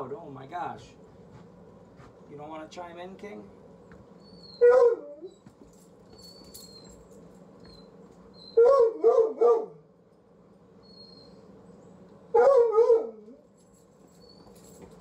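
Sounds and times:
dog barking: 0:04.6 - 0:05.2, 0:08.6 - 0:09.8, 0:12.3 - 0:13.3.

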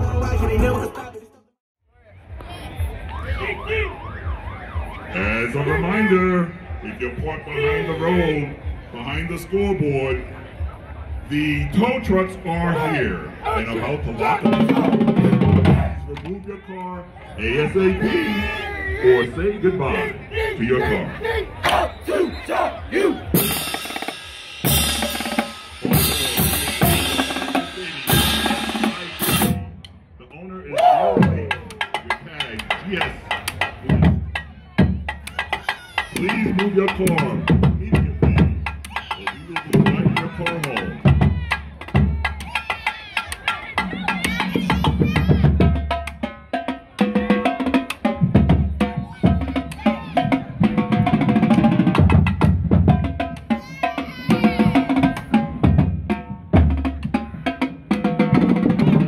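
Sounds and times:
marching drumline playing: 0:02.6 - 0:16.4, 0:17.5 - 0:29.8, 0:31.0 - 0:59.0
rapid snare drum strokes: 0:23.4 - 0:29.6.

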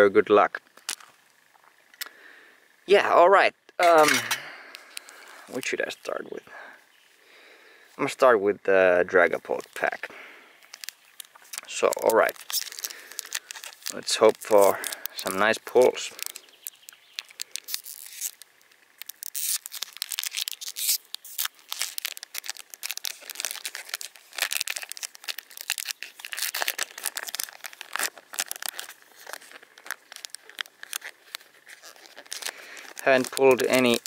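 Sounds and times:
foil wrapper tearing and crinkling: 0:09.5 - 0:10.0, 0:10.6 - 0:34.0.

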